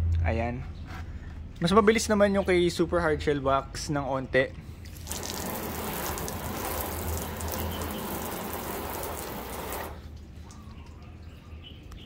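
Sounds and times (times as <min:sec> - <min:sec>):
hose spraying water on car: 0:05.0 - 0:10.0.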